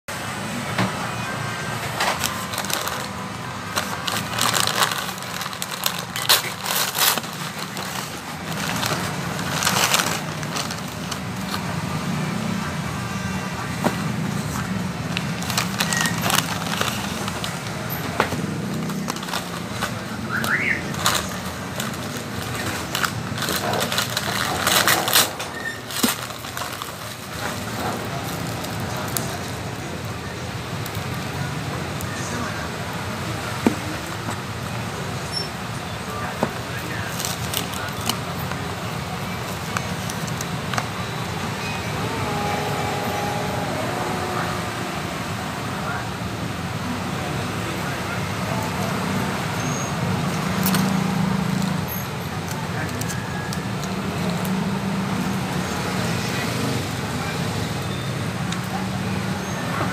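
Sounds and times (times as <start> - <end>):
paper bags rustling: 1.7 - 12.0, 13.7 - 30.0, 36.2 - 45.3.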